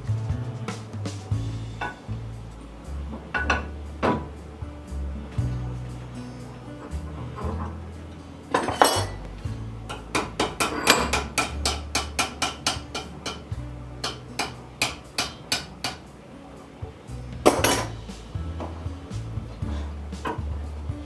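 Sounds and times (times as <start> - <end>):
hammer striking chisel on metal: 9.9 - 16.1, 17.4 - 18.0.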